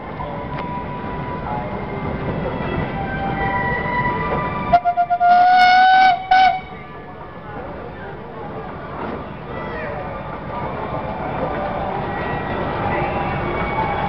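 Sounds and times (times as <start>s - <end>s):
steam whistle: 4.7s - 6.7s.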